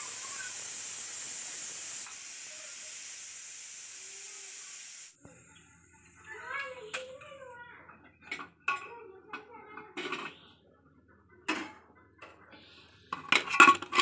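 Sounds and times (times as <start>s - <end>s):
faint steam hiss: 0.0s - 7.3s
metal lid clattering: 10.0s - 10.4s, 13.1s - 14.0s.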